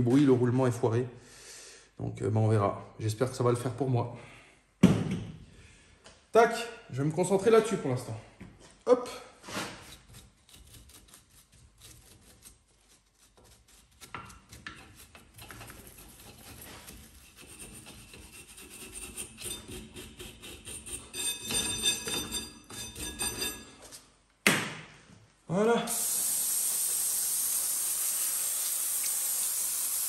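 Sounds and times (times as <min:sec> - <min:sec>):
hand scraping metal bearing: 0:09.5 - 0:24.0.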